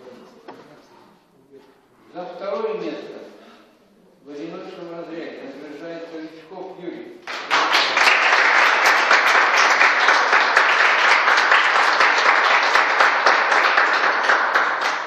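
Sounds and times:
people applauding: 0:07.2 - 0:15.0.

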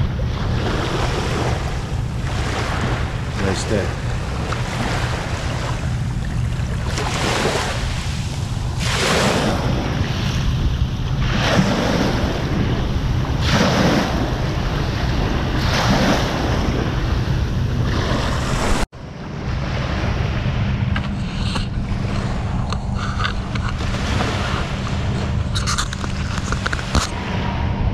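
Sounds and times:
sea waves washing onto beach: 0:00.0 - 0:27.6
wind rumbling on microphone: 0:00.0 - 0:27.9.

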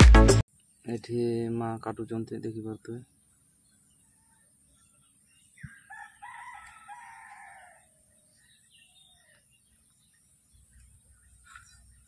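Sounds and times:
rooster crowing: 0:05.7 - 0:08.2.

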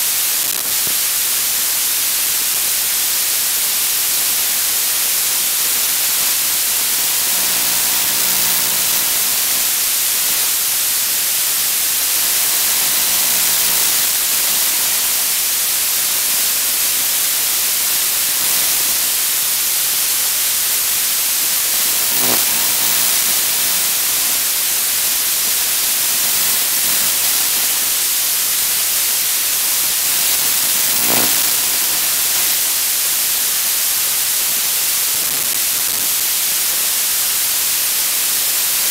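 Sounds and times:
static hiss: 0:00.0 - 0:38.9
faint buzzy tones: 0:30.1 - 0:32.2.

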